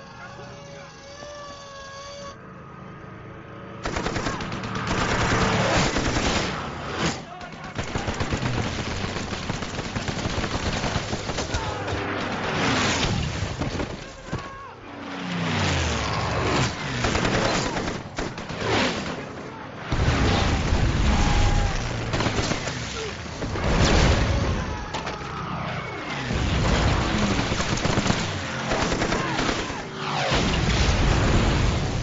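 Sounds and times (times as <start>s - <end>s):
rapid machine-gun fire: 3.8s - 14.5s, 16.4s - 24.6s, 26.2s - 32.0s
people shouting: 7.1s - 8.2s, 11.4s - 12.2s, 14.1s - 15.0s, 19.5s - 22.1s, 22.9s - 26.3s, 28.9s - 30.0s
explosions: 15.7s - 24.9s, 26.0s - 32.0s.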